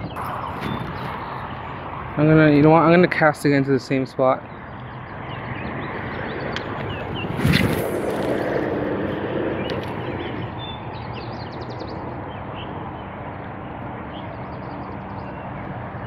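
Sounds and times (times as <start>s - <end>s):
outdoor background noise: 0.0s - 16.0s
fishing rod swishing: 7.2s - 8.8s.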